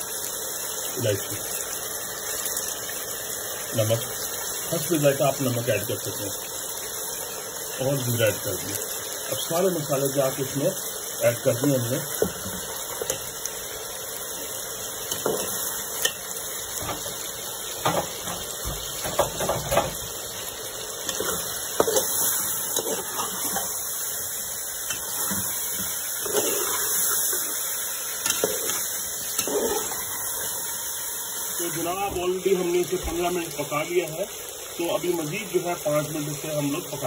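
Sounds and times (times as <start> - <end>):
food sizzling: 0.0 - 37.0
metal spoon scraping pot: 26.2 - 27.4, 28.2 - 30.2.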